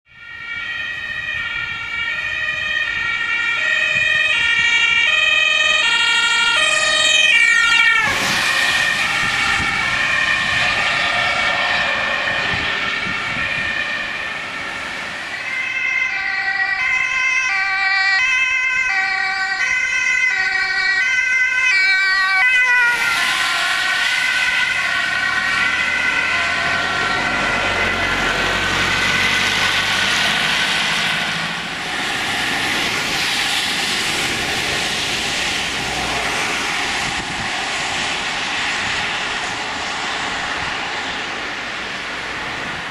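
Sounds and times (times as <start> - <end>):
two-tone ambulance siren: 0.1 - 42.9
tyres hissing on wet road: 7.3 - 13.0, 22.8 - 42.9.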